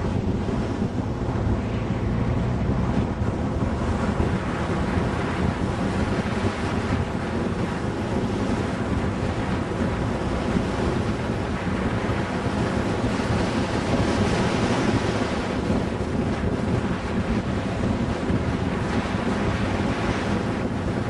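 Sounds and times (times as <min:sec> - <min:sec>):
car engine and road noise: 0:00.0 - 0:21.0
wind on microphone: 0:00.0 - 0:21.0.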